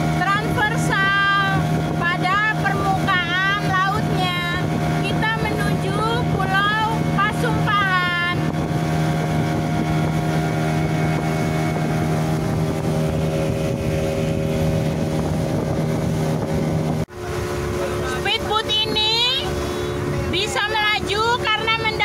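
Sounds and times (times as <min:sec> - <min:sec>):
rush of boat through water: 0:00.0 - 0:22.0
speedboat engine humming: 0:00.0 - 0:22.0.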